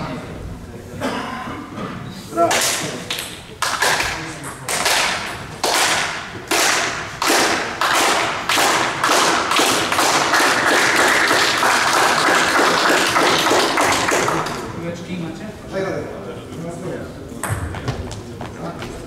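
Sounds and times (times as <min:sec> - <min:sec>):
sharp smacks in sports hall: 0:02.4 - 0:11.5.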